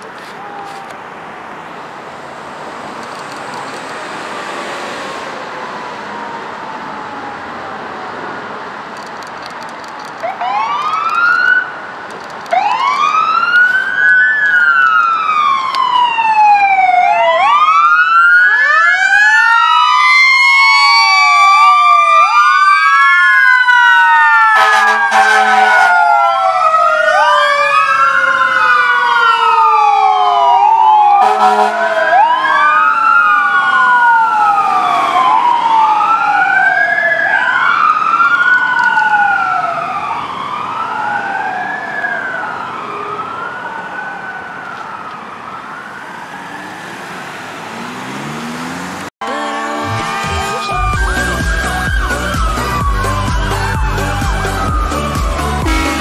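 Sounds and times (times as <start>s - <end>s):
fire engine siren wailing: 0.0s - 9.0s, 10.0s - 56.0s
truck air horn blasts: 24.6s - 25.9s, 31.2s - 32.0s, 49.2s - 51.0s, 55.6s - 56.0s.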